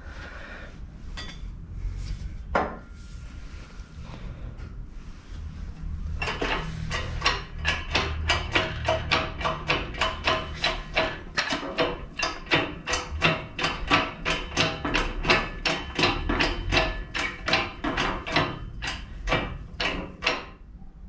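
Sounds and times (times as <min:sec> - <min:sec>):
hydraulic press ram pressing: 0:06.2 - 0:20.6.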